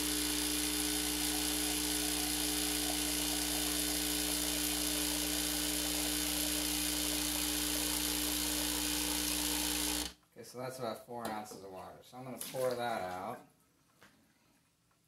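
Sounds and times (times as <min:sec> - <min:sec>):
espresso machine pump buzzing: 0:00.0 - 0:10.2.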